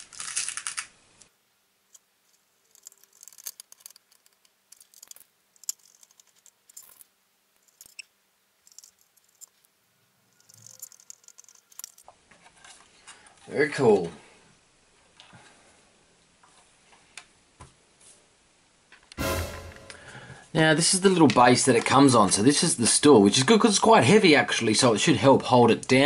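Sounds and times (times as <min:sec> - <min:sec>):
screwdriver turning small screws: 0:02.7 - 0:08.0, 0:08.6 - 0:09.6, 0:10.4 - 0:12.0
small screws rattling in plastic tub: 0:02.7 - 0:08.0, 0:08.6 - 0:09.6, 0:10.4 - 0:12.0.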